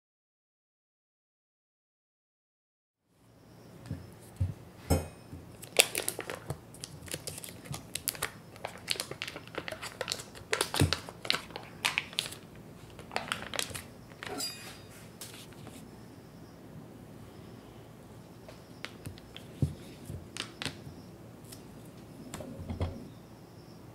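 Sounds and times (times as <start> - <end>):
foil wrapper crinkling: 5.6 - 14.4, 18.8 - 20.8.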